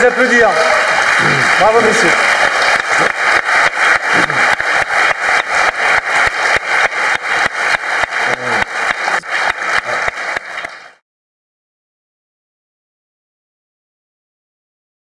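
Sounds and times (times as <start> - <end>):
audience clapping in unison: 0.0 - 11.0.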